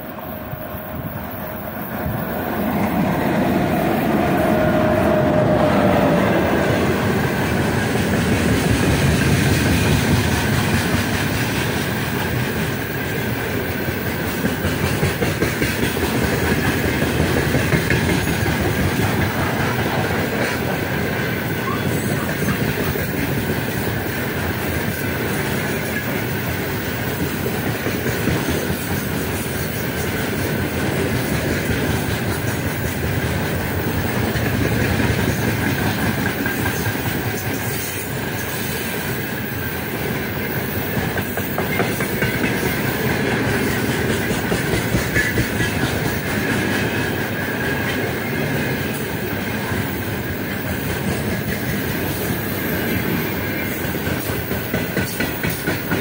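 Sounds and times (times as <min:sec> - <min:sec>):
locomotive whine: 0:00.0 - 0:10.7
train wheels clacking on rails: 0:00.0 - 0:56.0.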